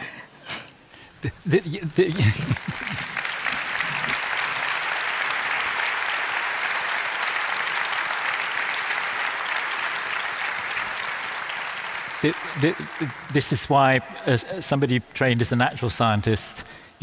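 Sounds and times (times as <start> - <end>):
audience applauding: 1.5 - 16.3.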